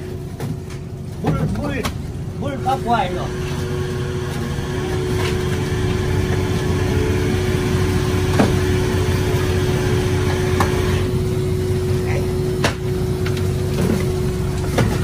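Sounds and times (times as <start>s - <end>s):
machinery humming: 0.0s - 15.0s.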